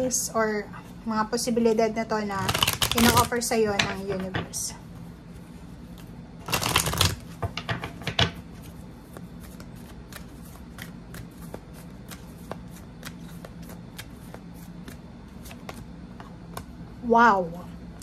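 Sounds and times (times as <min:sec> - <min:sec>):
cards riffling: 0:02.5 - 0:03.3, 0:06.4 - 0:07.4.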